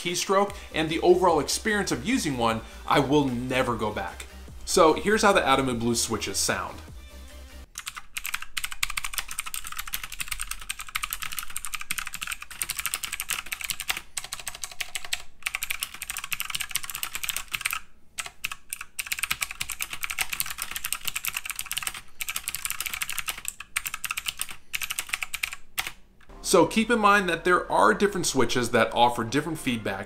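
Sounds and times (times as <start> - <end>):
mechanical keyboard typing clicks: 7.8 - 26.0.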